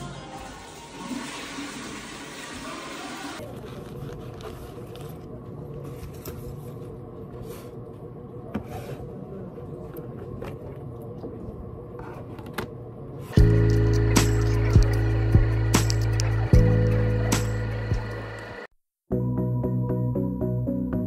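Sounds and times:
indoor background hum: 0:00.0 - 0:18.7.

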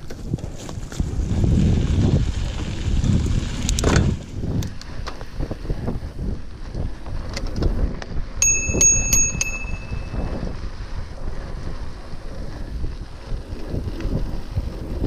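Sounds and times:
bicycle riding rattle: 0:00.0 - 0:15.0
wind rumble on microphone: 0:00.0 - 0:15.0
bicycle bell ringing: 0:08.4 - 0:10.4.

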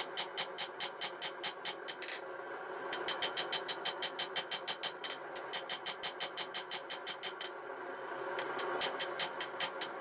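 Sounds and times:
steady hum: 0:00.0 - 0:10.0.

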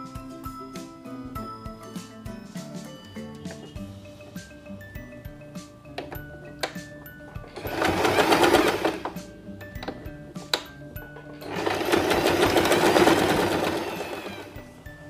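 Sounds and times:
sewing machine stitching: 0:07.6 - 0:09.2, 0:11.4 - 0:14.6.

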